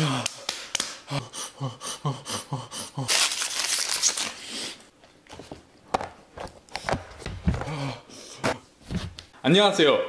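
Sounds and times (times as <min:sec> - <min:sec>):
chip wrapper rustling: 0:03.1 - 0:04.4.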